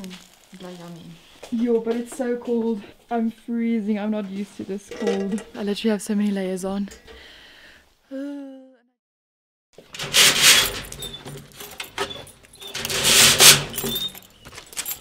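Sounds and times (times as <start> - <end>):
metal security gate rattling and scraping: 9.8 - 15.0
keys jangling: 10.7 - 15.0.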